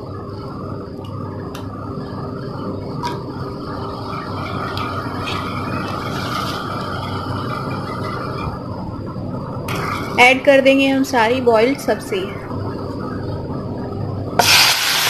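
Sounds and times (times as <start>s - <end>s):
steady low hum: 0.0s - 15.0s
hot oil sizzling and popping: 14.4s - 15.0s.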